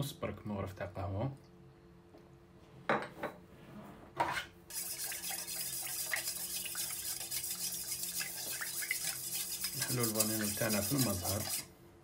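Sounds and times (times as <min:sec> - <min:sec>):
fingers swishing water in a bowl: 0:04.7 - 0:11.7.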